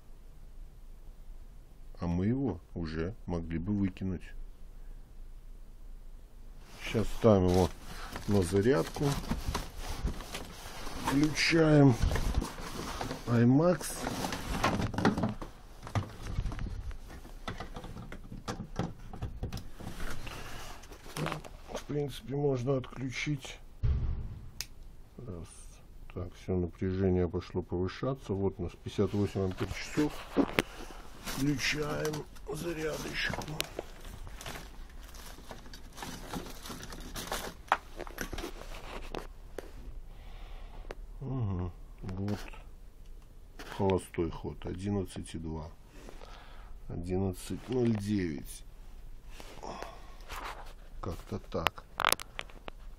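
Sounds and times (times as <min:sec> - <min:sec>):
low steady hum: 0:00.0 - 0:52.9
rustling and shuffling: 0:06.5 - 0:25.7, 0:28.2 - 0:40.1, 0:43.5 - 0:52.9
sharp click: 0:23.8 - 0:24.9.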